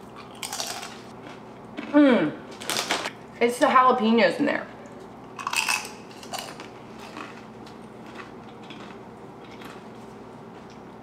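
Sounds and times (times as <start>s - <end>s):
tortilla chip crunching: 0.0s - 2.0s, 5.3s - 10.0s
chewing: 5.4s - 11.0s.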